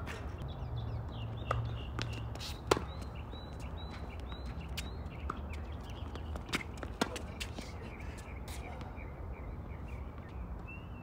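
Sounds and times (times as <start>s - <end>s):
tennis ball hit by rackets: 1.4s - 3.0s.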